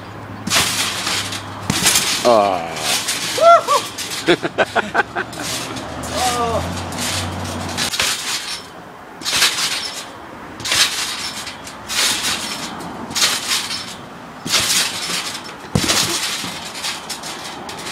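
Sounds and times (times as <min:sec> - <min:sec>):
trampoline springs and mat: 0:00.0 - 0:17.9
heavy thump: 0:00.4 - 0:02.2, 0:10.6 - 0:17.0.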